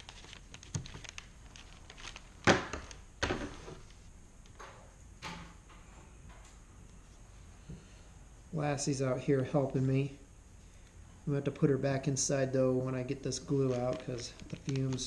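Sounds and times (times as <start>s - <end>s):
paper and leather rustling: 0.0s - 4.1s, 13.6s - 15.0s.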